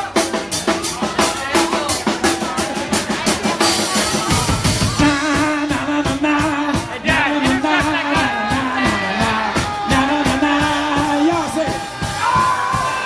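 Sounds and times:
live soul band playing: 0:00.0 - 0:13.0
man singing: 0:03.7 - 0:12.9.

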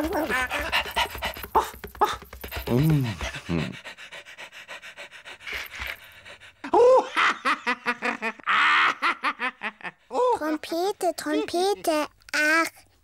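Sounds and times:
cartoon dog panting: 0:00.0 - 0:06.7.

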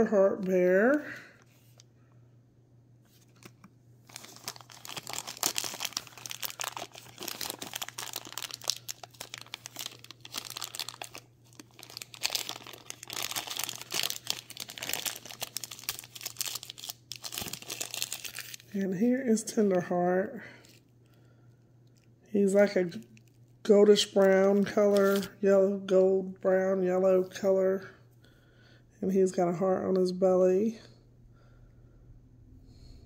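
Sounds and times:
plastic bag crinkling: 0:03.1 - 0:18.8, 0:21.9 - 0:25.4.

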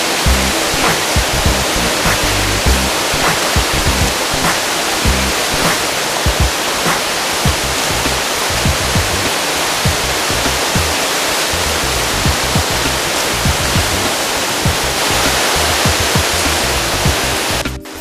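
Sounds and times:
rushing river rapids: 0:00.0 - 0:18.0
music with bass beat: 0:00.2 - 0:06.6, 0:07.4 - 0:11.0, 0:11.6 - 0:18.0.

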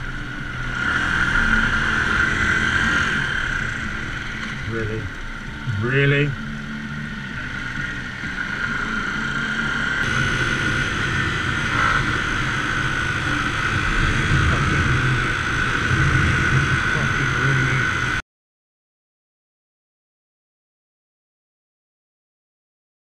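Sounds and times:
motorcycle engine drone: 0:00.0 - 0:18.2
wind rush over microphone: 0:10.0 - 0:18.2.

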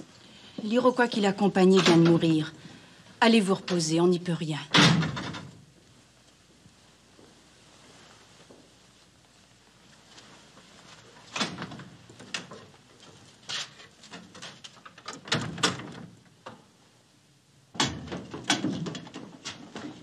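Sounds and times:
wooden knocks and clunks: 0:17.8 - 0:20.0.

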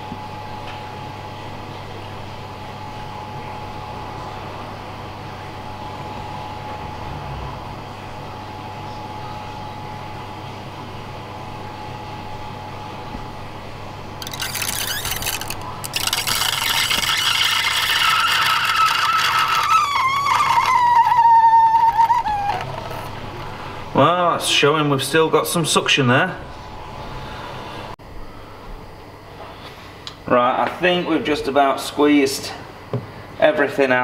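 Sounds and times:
pump humming: 0:11.4 - 0:24.9
outlet slurping gurgle with whistle: 0:14.2 - 0:23.0.

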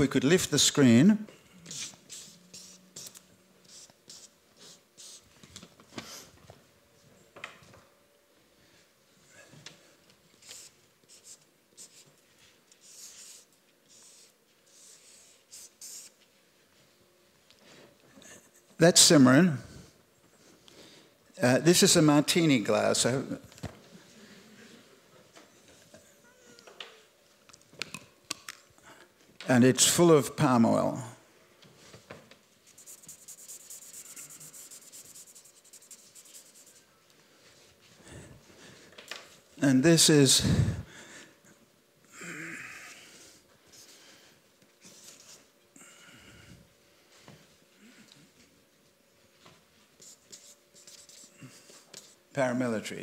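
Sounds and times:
felt-tip marker drawing on paper: 0:01.7 - 0:05.2, 0:10.4 - 0:12.1, 0:12.8 - 0:16.2, 0:32.7 - 0:36.8, 0:50.0 - 0:51.3.

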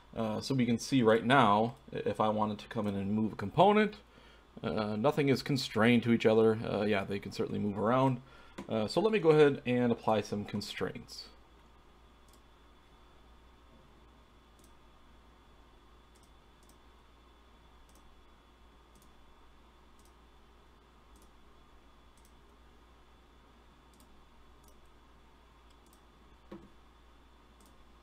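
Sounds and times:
computer mouse clicks: 0:12.2 - 0:12.5, 0:14.5 - 0:14.8, 0:16.1 - 0:16.8, 0:17.8 - 0:18.1, 0:18.9 - 0:19.2, 0:20.0 - 0:20.2, 0:21.1 - 0:21.4, 0:22.1 - 0:22.4, 0:23.9 - 0:25.0, 0:25.6 - 0:26.7, 0:27.6 - 0:27.8.

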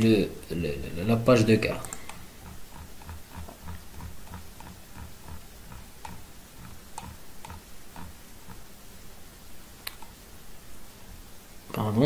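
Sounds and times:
mouse scroll wheel clicking: 0:01.8 - 0:08.7, 0:09.9 - 0:10.2.

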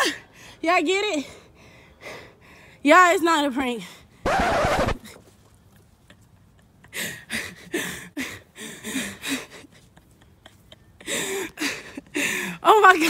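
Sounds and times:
person panting: 0:06.9 - 0:12.6.

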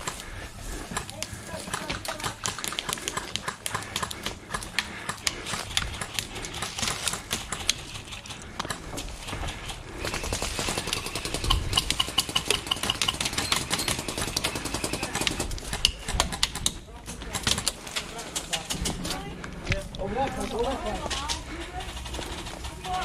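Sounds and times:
footsteps through dry brush: 0:00.0 - 0:11.2.

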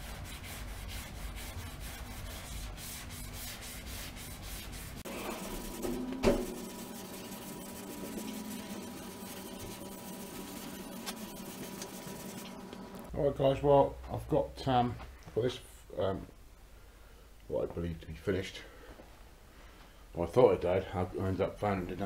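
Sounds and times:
sandpaper scratching back and forth: 0:00.0 - 0:12.6.

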